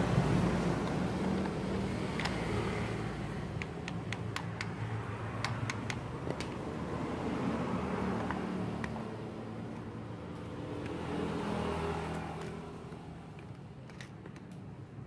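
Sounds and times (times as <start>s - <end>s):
clicks of plastic and metal parts: 0.8s - 2.6s, 3.5s - 4.8s, 5.4s - 6.6s, 12.1s - 14.7s.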